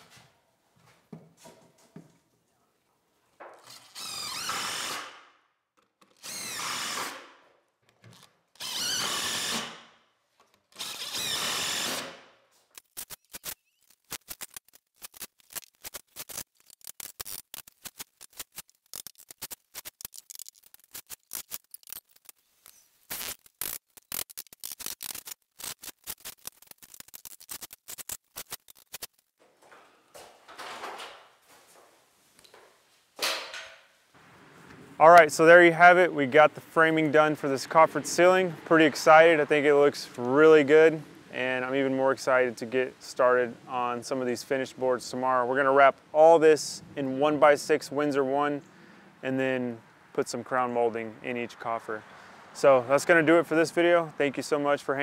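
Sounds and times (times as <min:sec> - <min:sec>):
power drill driving screws into wood: 0:03.6 - 0:05.3, 0:06.0 - 0:07.4, 0:08.2 - 0:10.0, 0:10.7 - 0:12.4.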